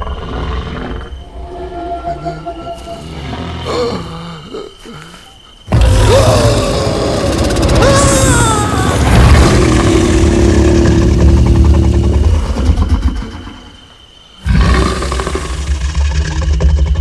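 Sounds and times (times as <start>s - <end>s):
deep dinosaur roar: 5.7s - 13.6s, 14.4s - 17.0s.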